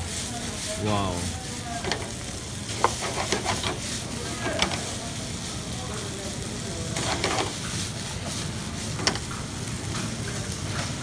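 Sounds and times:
food sizzling in frying pan: 0:00.0 - 0:11.0
wooden spatula stirring: 0:01.8 - 0:05.5, 0:07.0 - 0:09.4.

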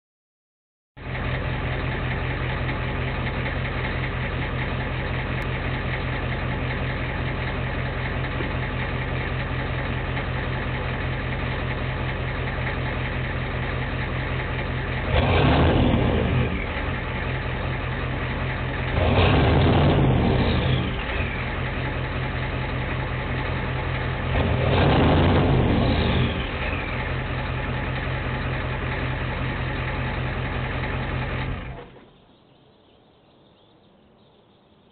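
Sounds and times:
diesel engine idling high: 0:01.0 - 0:32.5
engine revs: 0:13.7 - 0:32.0.

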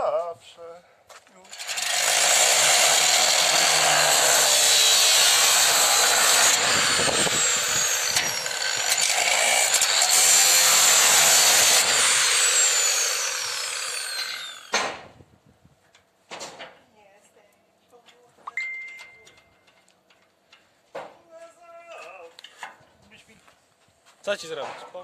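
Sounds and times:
angle grinder cutting steel: 0:01.4 - 0:14.7
sharp knock: 0:14.7 - 0:15.1.

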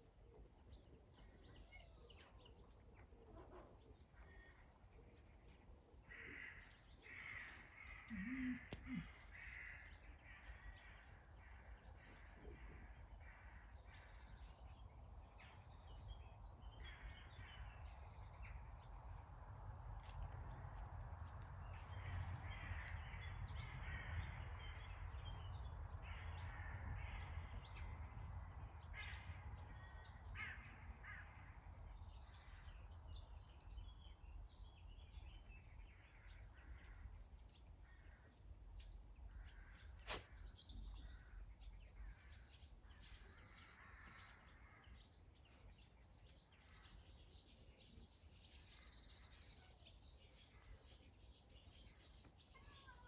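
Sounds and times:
birds chirping: 0:00.0 - 0:53.0
crow-like caws: 0:06.1 - 0:11.2, 0:21.8 - 0:24.6, 0:26.0 - 0:28.0, 0:28.9 - 0:31.6, 0:43.6 - 0:44.8
sharp click: 0:40.0 - 0:40.3.

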